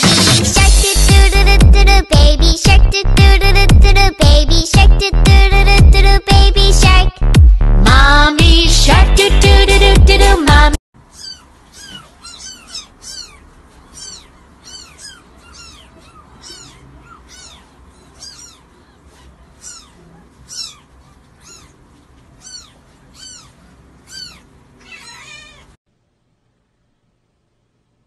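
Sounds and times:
kitten mewing: 11.1s - 25.8s.

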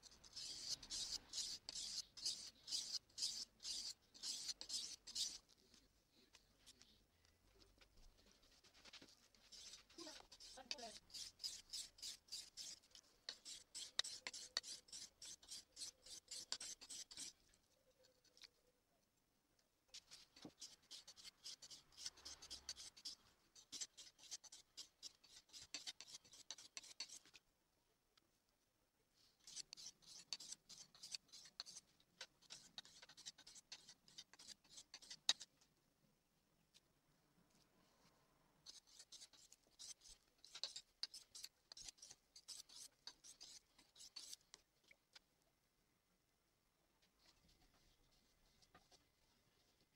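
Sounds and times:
knife scraping on whetstone: 0.3s - 5.4s, 9.5s - 17.4s, 20.0s - 27.3s, 29.4s - 35.5s, 38.7s - 44.5s.

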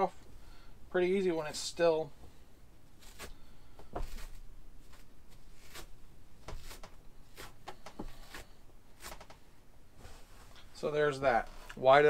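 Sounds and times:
fabric ripping: 3.0s - 3.4s, 4.0s - 7.6s.

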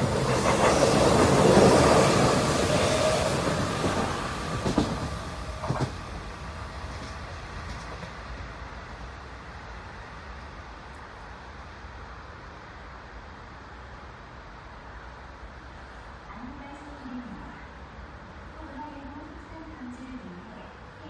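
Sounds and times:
electric train passing: 0.0s - 21.0s.

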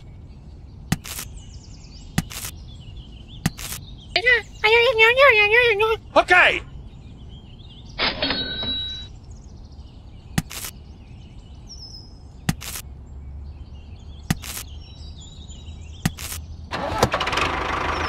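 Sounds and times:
brief rustle: 2.2s - 2.6s, 3.5s - 3.8s, 10.4s - 10.8s, 14.3s - 14.7s
short sharp clicks: 2.2s - 2.6s, 3.5s - 3.8s, 10.4s - 10.8s, 12.5s - 12.8s, 14.3s - 14.7s, 16.0s - 16.4s
tractor engine knocking idle: 16.7s - 18.0s.

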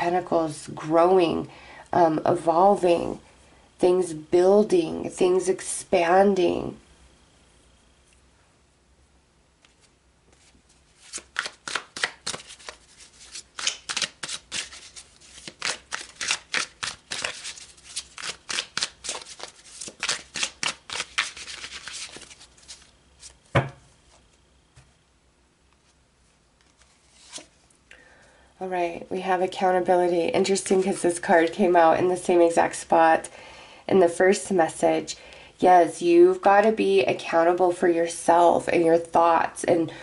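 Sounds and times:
cards being shuffled: 9.6s - 23.4s, 26.6s - 27.6s
thump: 23.5s - 23.8s.

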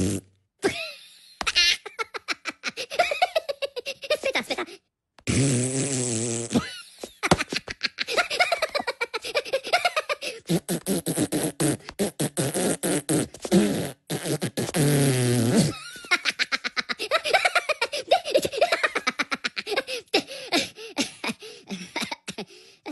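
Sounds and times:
cartoon voices laughing and giggling: 0.6s - 4.9s, 6.6s - 10.5s, 15.7s - 22.9s.

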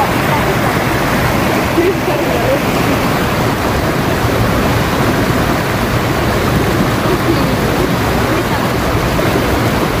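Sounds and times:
river rushing over rocks: 0.0s - 10.0s.

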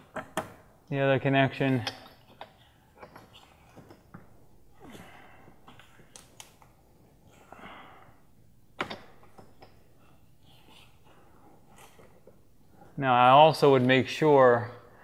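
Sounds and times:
plastic fittings clicking and rubbing: 1.6s - 4.2s.

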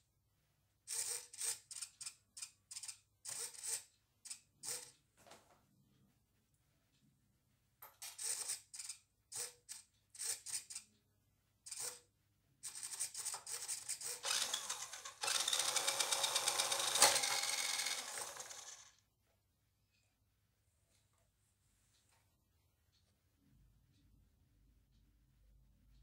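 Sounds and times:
rc car motor and gears whirring: 0.9s - 5.0s, 8.1s - 10.8s, 11.7s - 12.0s, 12.6s - 19.0s.

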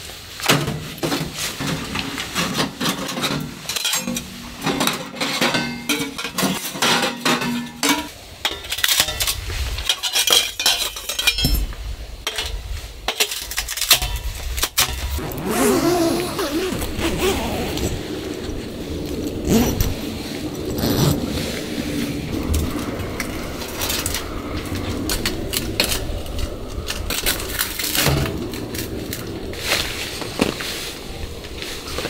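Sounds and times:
metal pipes clinking and clanking: 0.4s - 15.1s.

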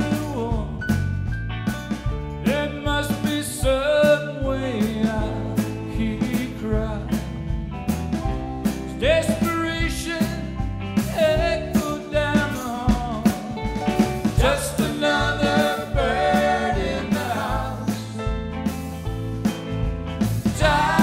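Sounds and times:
person singing: 0.0s - 0.8s, 11.1s - 13.5s, 20.5s - 21.0s
bass: 0.0s - 21.0s
drums: 0.0s - 21.0s
electric guitars: 0.0s - 21.0s.

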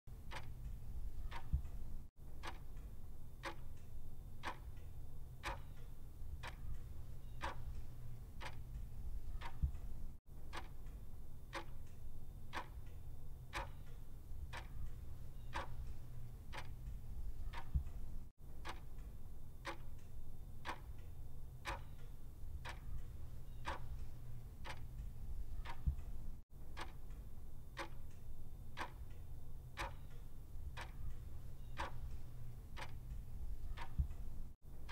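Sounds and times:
clock ticking: 0.1s - 29.2s, 29.8s - 34.9s
low steady hum: 0.1s - 34.9s.

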